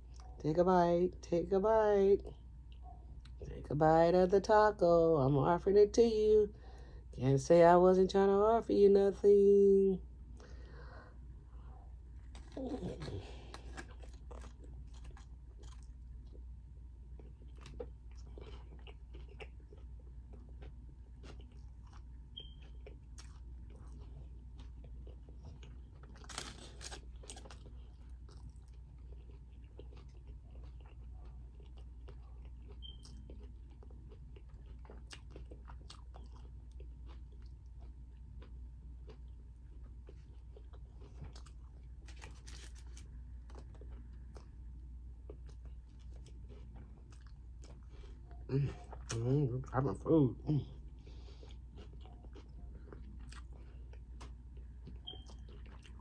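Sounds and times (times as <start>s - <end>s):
chewing with mouth clicks: 11.6s - 49.7s, 50.7s - 56.0s.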